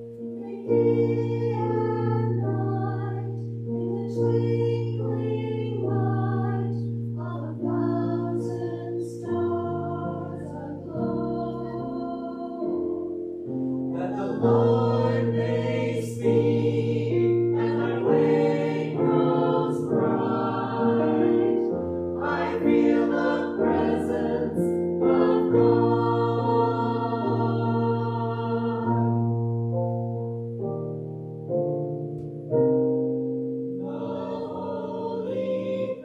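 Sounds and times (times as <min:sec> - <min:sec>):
mixed choir singing an anthem: 0:04.8 - 0:12.7, 0:13.9 - 0:29.1, 0:33.8 - 0:36.0.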